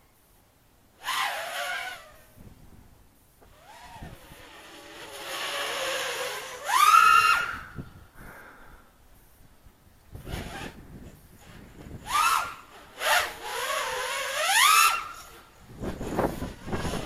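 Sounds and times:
drone motors whining: 0:03.4 - 0:07.8, 0:11.9 - 0:17.0.

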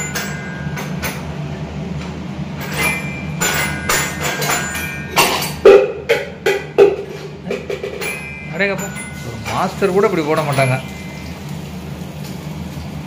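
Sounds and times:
utensils clicking and knocking: 0:02.6 - 0:10.9
batter sizzling in hot oil: 0:09.7 - 0:13.0.

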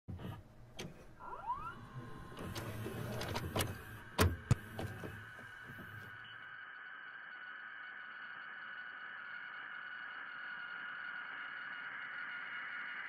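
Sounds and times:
mechanism clicks and clunks: 0:00.1 - 0:06.2
cassette player motor whirring: 0:00.1 - 0:06.4
low hum: 0:00.1 - 0:13.0.

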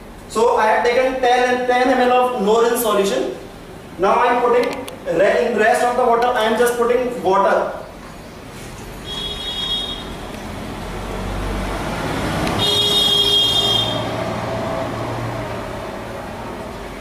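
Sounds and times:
road traffic: 0:03.4 - 0:04.0, 0:07.7 - 0:17.0
vehicle horn: 0:09.0 - 0:10.2, 0:12.6 - 0:14.2.

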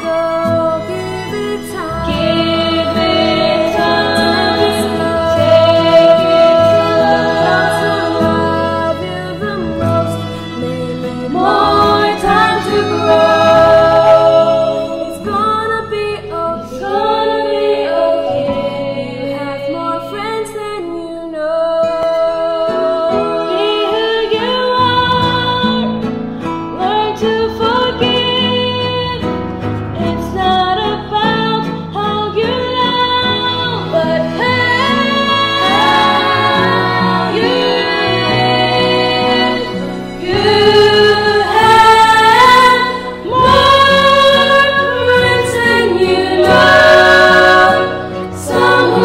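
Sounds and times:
woman singing a cappella harmony: 0:00.0 - 0:26.1, 0:26.8 - 0:29.4, 0:30.0 - 0:49.0.

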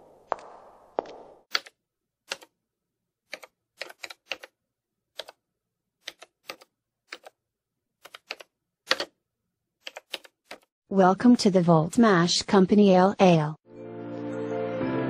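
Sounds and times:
keyboard keystrokes: 0:01.5 - 0:02.5, 0:03.3 - 0:04.5, 0:05.2 - 0:05.4, 0:06.0 - 0:07.4, 0:08.0 - 0:09.1, 0:09.8 - 0:10.7.

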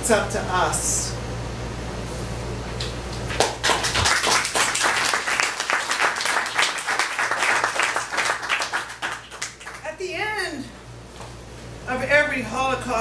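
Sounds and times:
audience applauding: 0:03.3 - 0:09.9.

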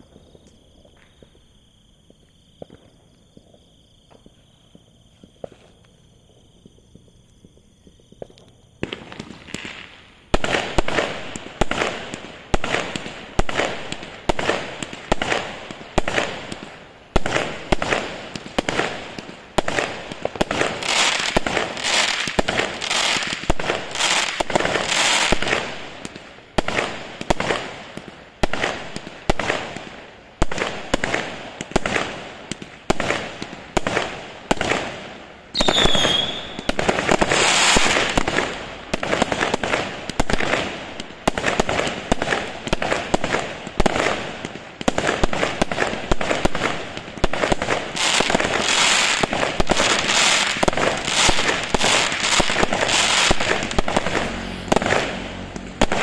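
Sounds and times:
falling firework whistle: 0:35.5 - 0:40.7, 0:48.0 - 0:56.0
firework launch thumps and bursts: 0:35.6 - 0:56.0.

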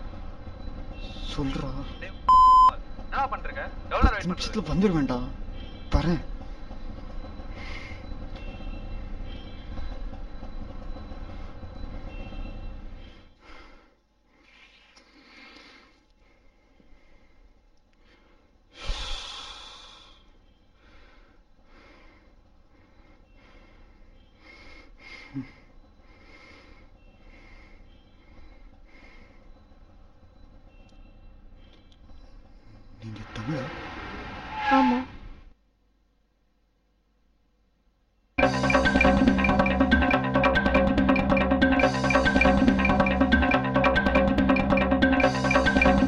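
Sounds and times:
rickshaw engine droning: 0:00.0 - 0:13.4, 0:25.3 - 0:35.5, 0:38.4 - 0:46.0
road rumble: 0:00.0 - 0:14.4, 0:15.2 - 0:35.7
person breathing and sniffing: 0:13.4 - 0:17.5, 0:18.1 - 0:20.3.

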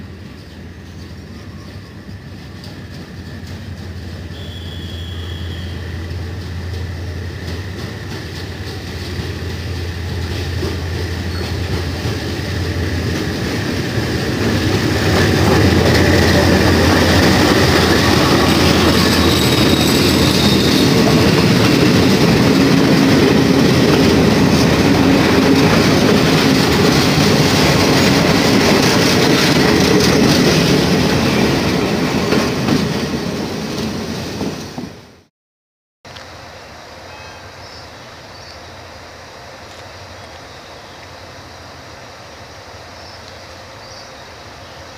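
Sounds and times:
low train hum: 0:00.0 - 0:35.3, 0:36.1 - 0:44.9
train wheels clicking over rail joints: 0:00.4 - 0:34.9.

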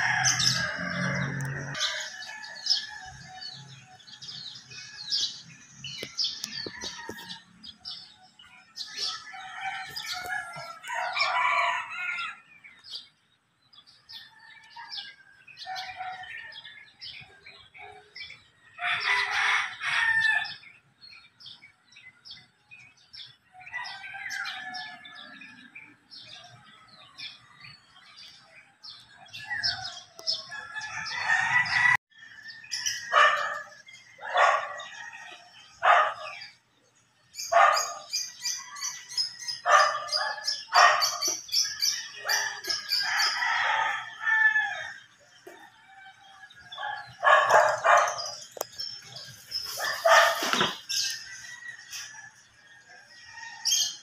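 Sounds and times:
rooster crowing: 0:00.0 - 0:03.6, 0:08.8 - 0:12.4, 0:18.8 - 0:20.6, 0:29.3 - 0:36.3, 0:41.7 - 0:48.4, 0:51.1 - 0:54.0
small birds chirping: 0:00.0 - 0:19.3, 0:20.4 - 0:54.0.

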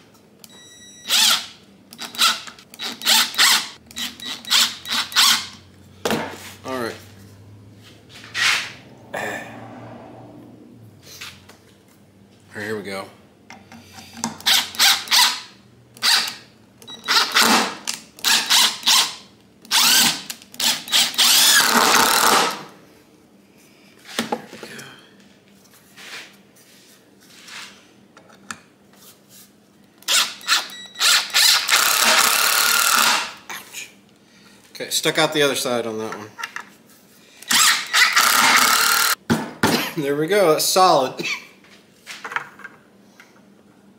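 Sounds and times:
impact driver driving screws: 0:01.1 - 0:05.6, 0:14.2 - 0:16.4, 0:17.0 - 0:22.6, 0:30.0 - 0:33.4, 0:37.4 - 0:39.2.

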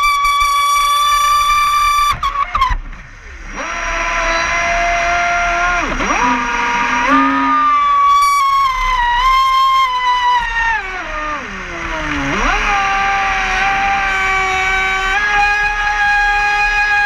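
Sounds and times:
model boat motor whine: 0:00.0 - 0:17.0.

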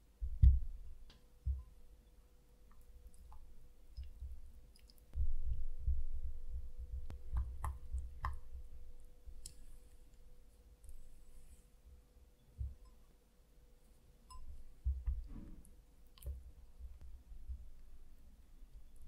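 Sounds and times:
dull low knocks: 0:05.2 - 0:08.7.

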